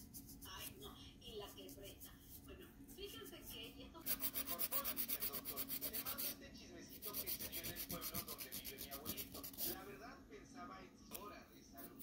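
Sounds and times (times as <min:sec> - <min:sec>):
nail file rubbing on plastic: 0:00.0 - 0:00.8, 0:04.0 - 0:06.4, 0:07.0 - 0:09.8.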